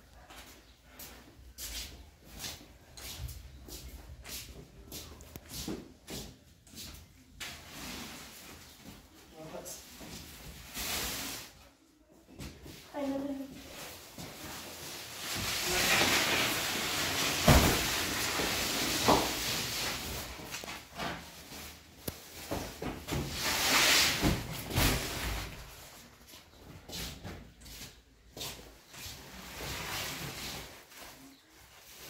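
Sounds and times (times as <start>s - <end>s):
woven sacks rustling and scraping: 13.0s - 26.6s
sacks thumping on floor: 15.3s - 20.4s, 22.4s - 25.7s.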